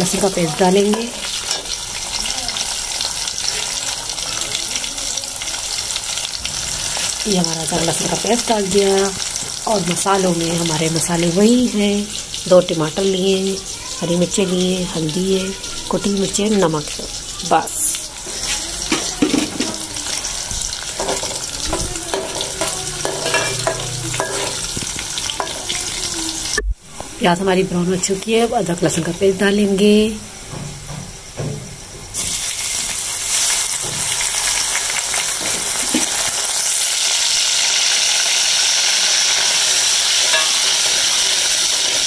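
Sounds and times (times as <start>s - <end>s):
onions sizzling in hot oil: 0.0s - 42.0s
ladle scraping and knocking pot: 18.9s - 19.8s, 21.0s - 25.6s, 40.2s - 41.0s.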